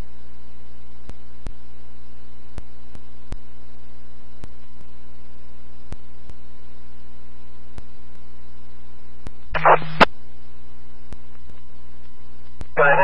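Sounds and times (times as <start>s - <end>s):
radio scanner hiss and hum: 0.0s - 13.0s
radio key-up click: 9.6s - 10.1s.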